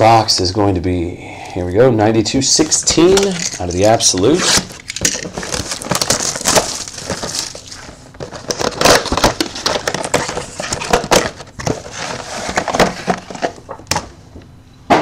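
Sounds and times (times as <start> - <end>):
pack wrappers rustling and crinkling: 3.0 - 13.7.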